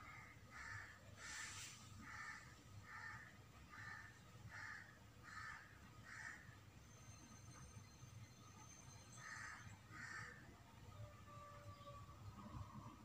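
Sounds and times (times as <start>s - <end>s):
brief hiss: 1.2s - 2.0s.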